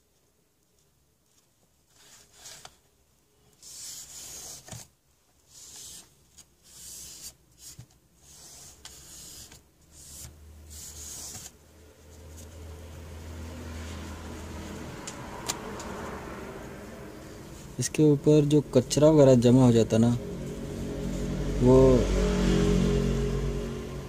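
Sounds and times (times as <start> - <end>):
low steady hum: 8.8 - 24.0.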